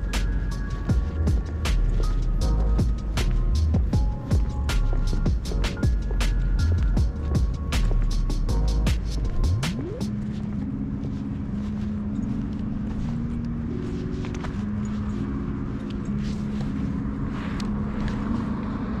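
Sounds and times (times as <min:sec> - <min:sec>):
soft background music: 0:00.0 - 0:19.0
cars going by: 0:13.0 - 0:19.0.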